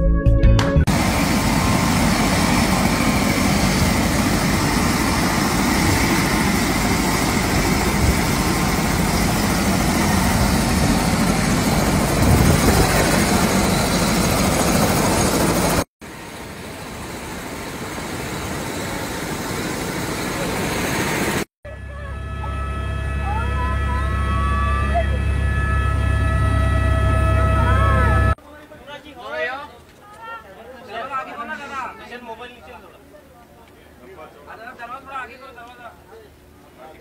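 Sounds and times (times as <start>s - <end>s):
helicopter engine and rotor: 0.9s - 21.5s.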